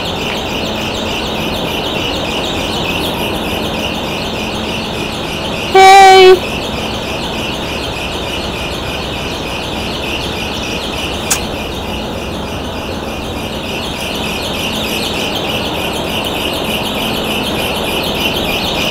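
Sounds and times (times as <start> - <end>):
small birds chirping: 0.0 - 18.9
sharp click: 11.3 - 11.5.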